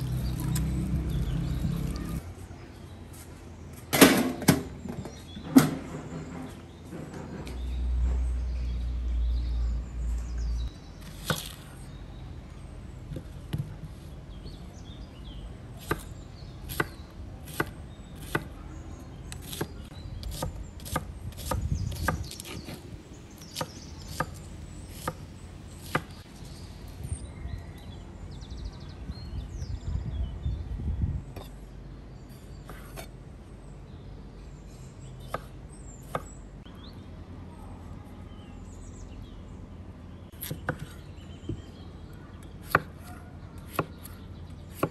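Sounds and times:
low rumble: 0.0 - 2.3
knife chopping on wooden board: 11.2 - 11.6, 15.8 - 16.1, 16.7 - 18.5, 19.4 - 22.8, 42.6 - 43.0.

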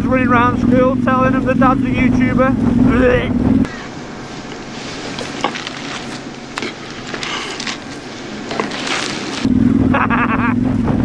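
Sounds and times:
motorcycle engine running: 0.0 - 11.0
rustling crackling noise: 4.2 - 9.5.

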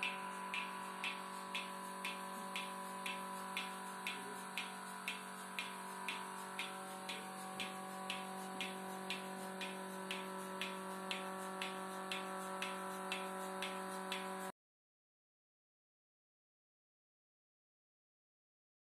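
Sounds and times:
milking pulsator clicking: 0.0 - 14.5
vacuum pump hum: 0.0 - 14.5.

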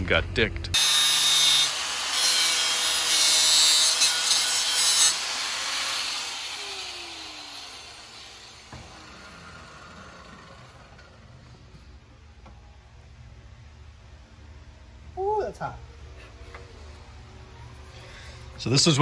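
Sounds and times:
angle grinder grinding steel: 0.8 - 11.4
motor winding down whine: 5.2 - 11.4.

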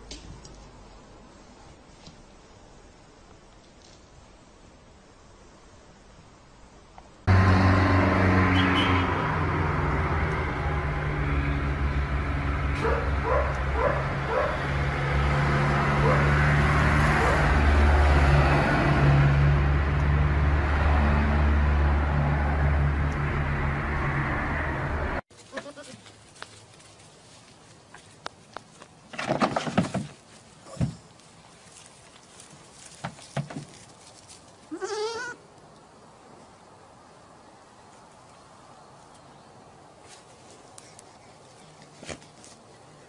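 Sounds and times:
road traffic rumble: 0.0 - 29.2, 29.8 - 43.0
dog barking: 12.8 - 14.6, 16.0 - 16.3, 17.1 - 17.5.

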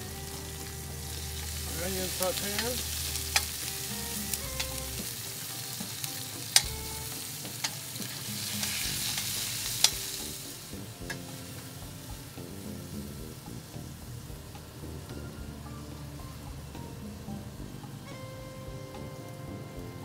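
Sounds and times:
onions sizzling in a skillet: 0.0 - 20.0
metal tongs clicking on a pan: 2.0 - 3.7, 5.9 - 10.1.

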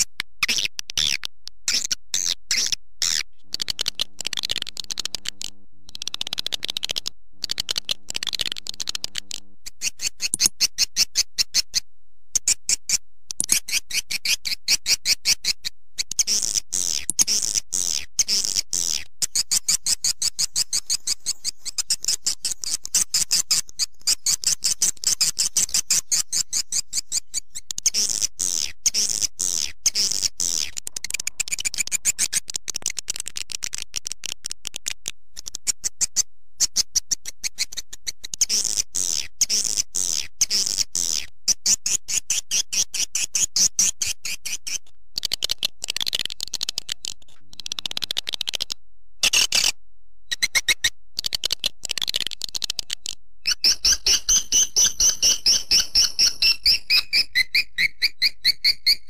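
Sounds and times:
swiftlet chirps and twitters: 53.5 - 59.0.

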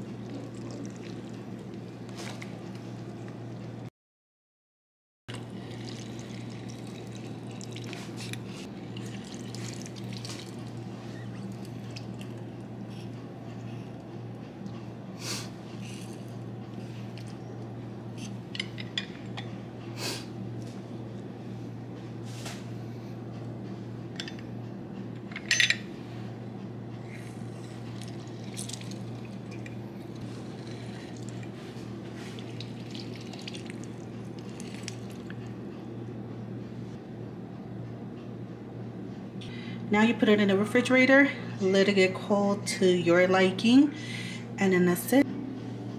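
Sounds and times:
utensil scooping wet food: 0.0 - 2.8, 5.3 - 12.4, 27.1 - 35.4
steady low hum: 0.0 - 3.9, 5.3 - 45.9.

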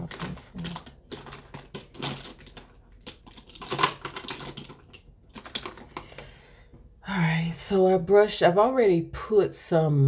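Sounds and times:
plastic items clicking and clattering: 0.0 - 6.4.

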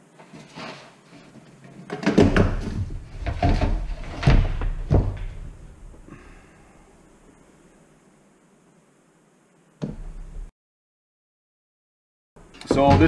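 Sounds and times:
heavy knocks on a workbench: 1.9 - 6.0, 12.7 - 13.0.

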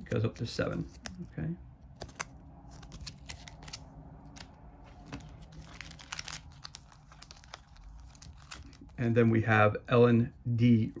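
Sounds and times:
cards clicking and crinkling: 0.0 - 1.3, 1.9 - 9.4.

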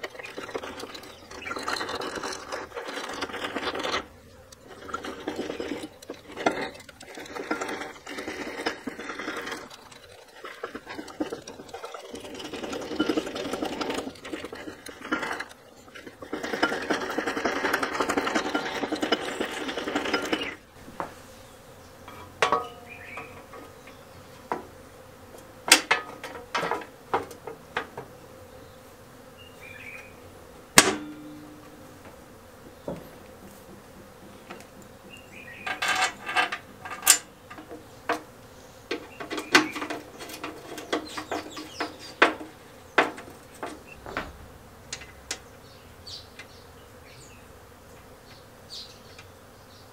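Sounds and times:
rapid metal chain rattle: 4.7 - 20.6.

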